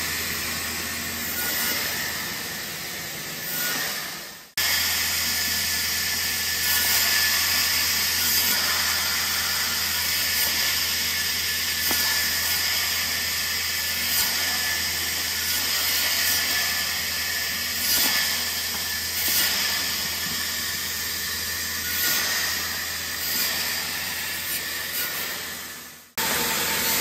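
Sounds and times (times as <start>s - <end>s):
band saw cutting wood: 0.0s - 27.0s.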